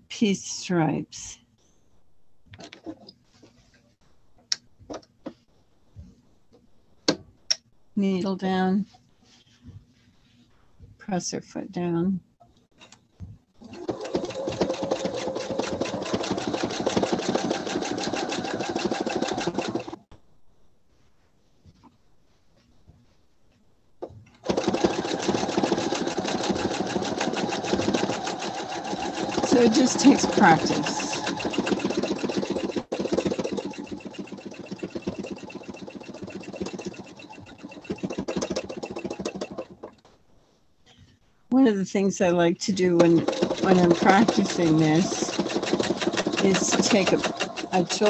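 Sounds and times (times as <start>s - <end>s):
sewing machine stitching fast: 13.6s - 20.0s, 24.4s - 39.9s, 43.0s - 48.0s.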